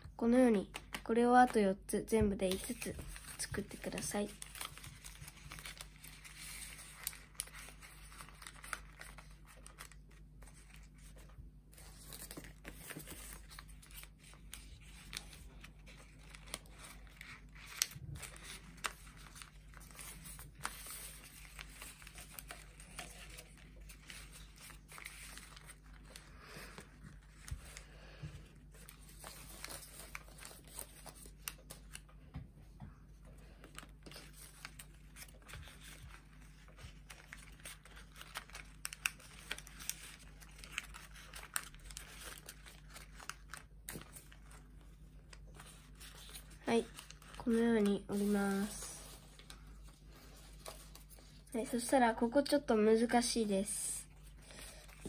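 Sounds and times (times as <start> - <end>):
small paper ticks and taps: 0.5 - 1.6
paper rustling and crinkling: 0.5 - 32.2, 33.1 - 55.0.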